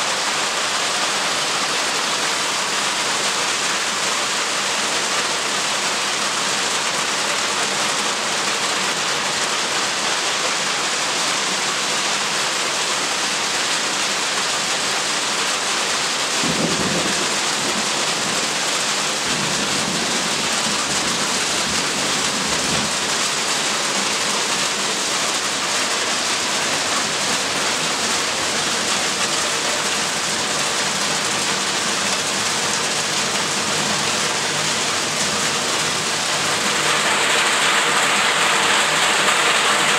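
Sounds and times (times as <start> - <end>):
hail and rain on roofs: 0.0 - 39.9.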